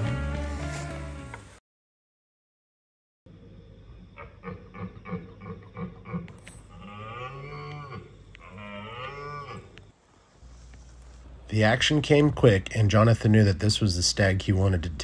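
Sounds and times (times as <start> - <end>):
stag grunting: 4.2 - 9.8
stag roaring: 4.8 - 9.9.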